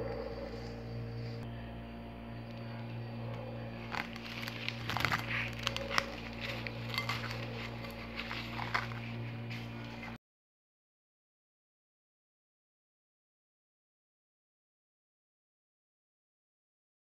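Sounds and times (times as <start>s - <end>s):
steady low hum: 0.0s - 10.2s
cling film crinkling: 3.8s - 10.2s.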